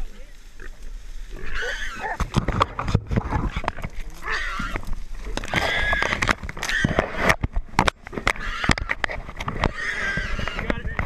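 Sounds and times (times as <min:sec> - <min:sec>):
brush crackling and snapping: 0:00.0 - 0:11.0
hog squealing: 0:01.4 - 0:02.2, 0:04.2 - 0:04.8, 0:05.5 - 0:07.0, 0:08.4 - 0:09.0, 0:09.7 - 0:10.8.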